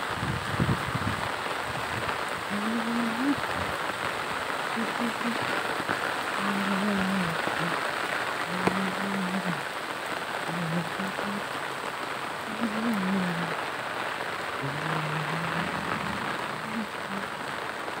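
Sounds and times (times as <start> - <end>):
steady rain on wet road: 0.0 - 18.0.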